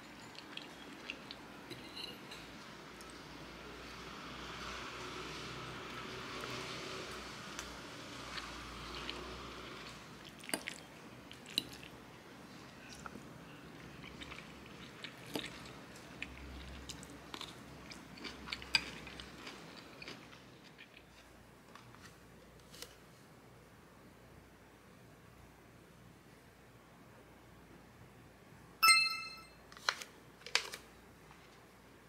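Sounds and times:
person chewing: 0.2s - 1.5s, 7.6s - 12.0s, 12.8s - 21.3s.

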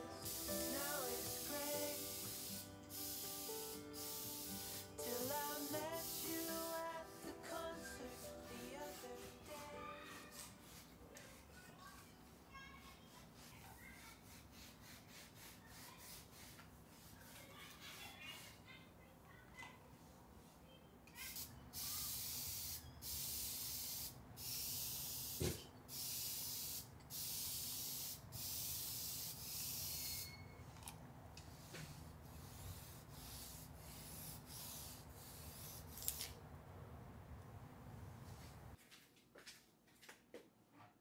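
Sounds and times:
spray bottle hissing: 0.0s - 9.7s, 21.3s - 30.3s, 31.6s - 36.2s.

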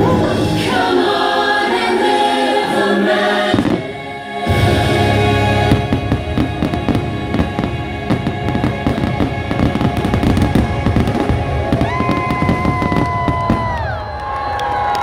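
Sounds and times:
show music: 0.0s - 13.8s
fireworks booming and crackling: 3.5s - 5.0s, 5.6s - 15.0s.

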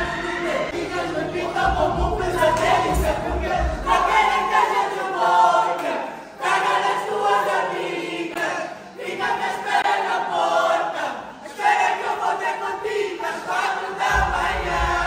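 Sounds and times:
group singing a cappella: 0.0s - 15.0s
singers breathing: 6.0s - 6.4s.

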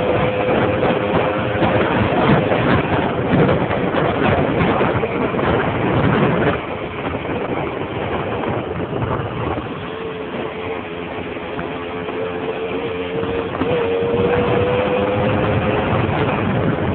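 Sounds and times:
moped engine running: 0.0s - 16.9s
wind and road noise: 0.0s - 16.9s.

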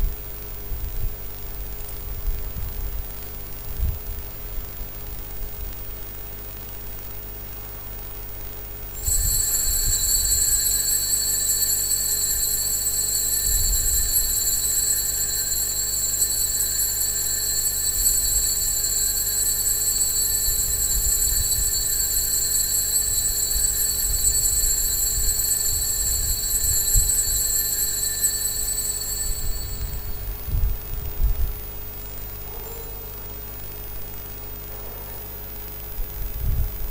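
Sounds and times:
altar bells ringing: 9.0s - 31.1s.

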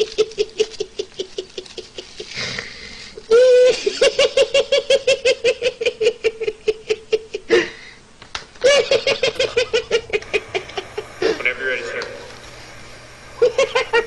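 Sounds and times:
man laughing uncontrollably: 0.0s - 2.4s, 3.3s - 7.8s, 8.6s - 11.4s, 13.4s - 14.0s
man squealing: 3.3s - 3.9s.

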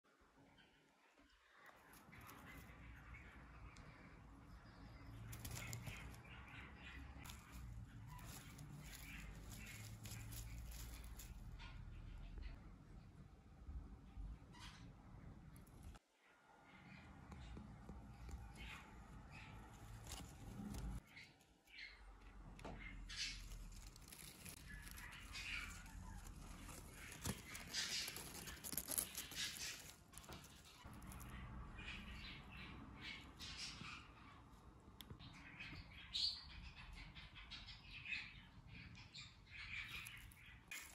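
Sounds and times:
soft budgie chatter: 0.5s - 13.1s, 16.7s - 40.9s
bird rustling and wing flutters: 5.2s - 6.3s, 7.2s - 11.6s, 19.5s - 21.0s, 23.1s - 31.3s, 40.2s - 40.9s.

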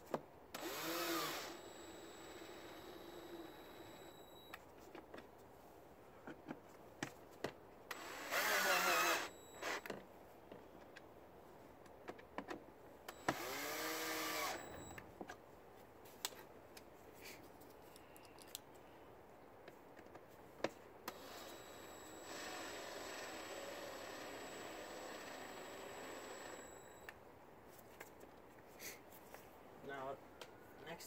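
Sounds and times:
electric screwdriver motor whirring: 0.6s - 4.1s, 7.9s - 9.9s, 13.1s - 15.0s, 21.1s - 27.1s.

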